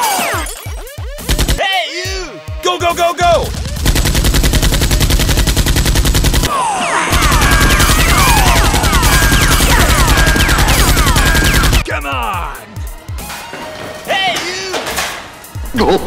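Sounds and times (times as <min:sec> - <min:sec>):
rapid machine-gun fire: 0:01.1 - 0:01.6, 0:03.3 - 0:06.5, 0:07.1 - 0:11.9.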